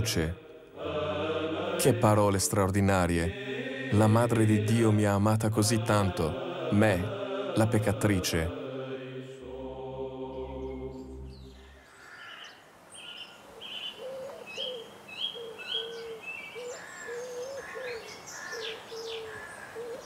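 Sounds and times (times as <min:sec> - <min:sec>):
chant with held drone: 0:00.0 - 0:11.9.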